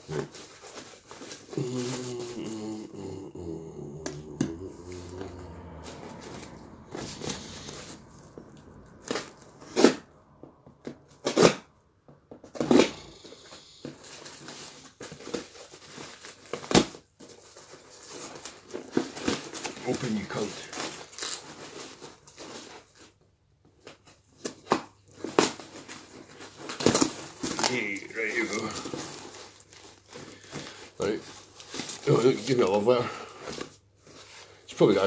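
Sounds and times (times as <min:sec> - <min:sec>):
cardboard scraping and rustling: 0:00.0 - 0:02.6, 0:04.5 - 0:10.2, 0:12.4 - 0:35.0
sharp cardboard rips: 0:09.0 - 0:10.2, 0:11.2 - 0:11.7.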